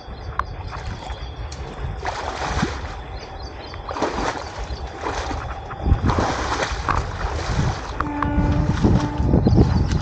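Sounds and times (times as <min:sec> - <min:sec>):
wind on microphone: 0:00.0 - 0:10.0
water splashing: 0:00.6 - 0:10.0.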